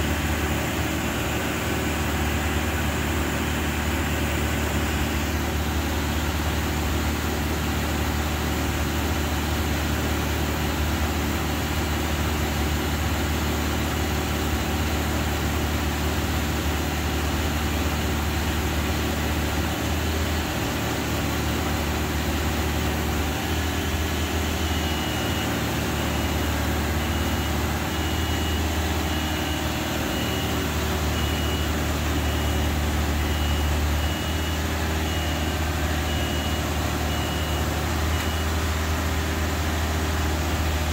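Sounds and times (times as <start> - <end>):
boom lift engine running: 0.0 - 40.9
high-pitched warning beeper: 24.1 - 38.6.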